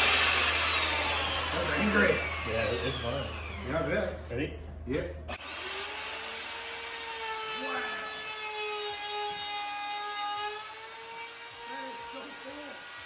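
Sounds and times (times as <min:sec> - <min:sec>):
electric router whining: 0:00.0 - 0:04.0, 0:05.3 - 0:13.0.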